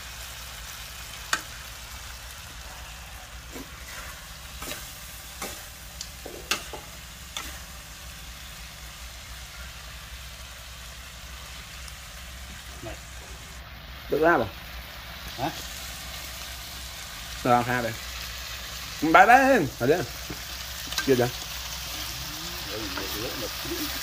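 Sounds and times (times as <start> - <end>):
food sizzling in a wok: 0.0 - 24.0
metal spoon scraping a wok: 2.8 - 7.8.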